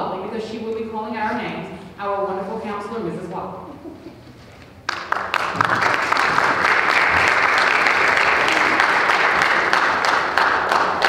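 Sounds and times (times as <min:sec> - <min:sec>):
audience clapping: 0:04.6 - 0:11.0.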